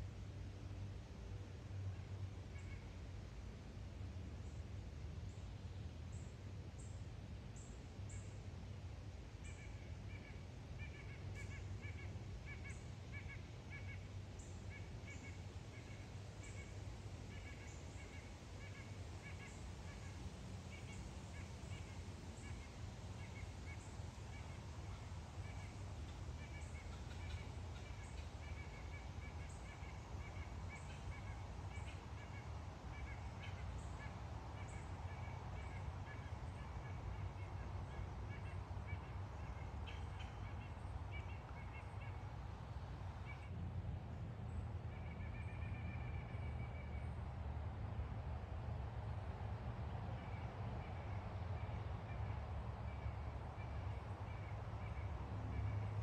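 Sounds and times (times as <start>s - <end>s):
birds calling: 17.3s - 43.5s.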